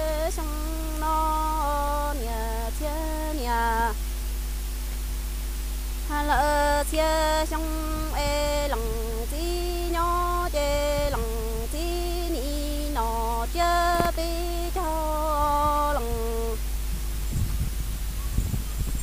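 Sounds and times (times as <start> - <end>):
woman singing unaccompanied: 0.0 - 4.0, 6.0 - 16.7.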